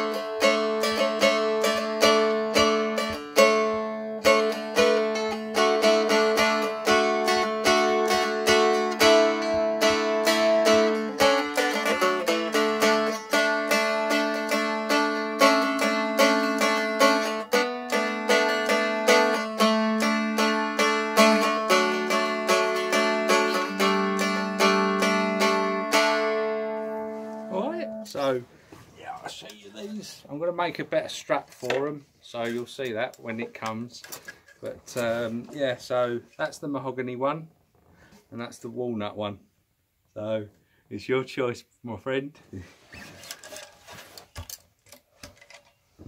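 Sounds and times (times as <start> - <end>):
stick dulcimer strummed: 0.0 - 28.4.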